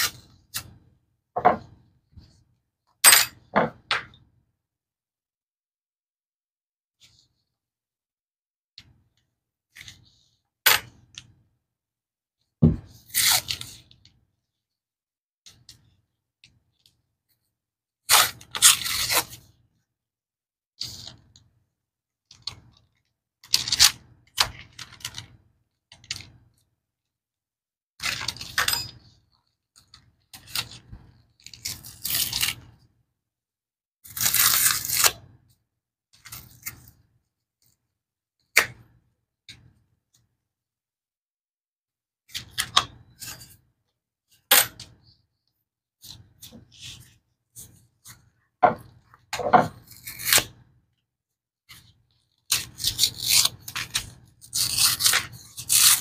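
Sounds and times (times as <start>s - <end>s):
cardboard tearing: 31.5s - 32.6s, 34.1s - 35.2s, 52.5s - 56.0s
blade scraping cardboard: 52.5s - 56.0s.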